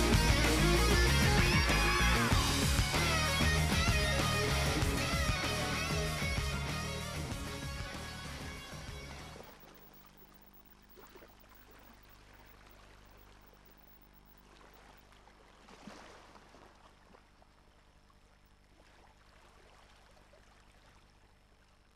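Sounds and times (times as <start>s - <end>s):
low steady hum: 0.0s - 21.9s.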